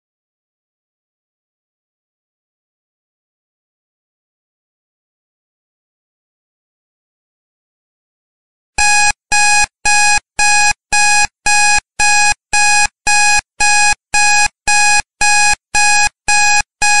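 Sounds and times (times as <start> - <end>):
electronic timer beeping: 8.8 - 17.0.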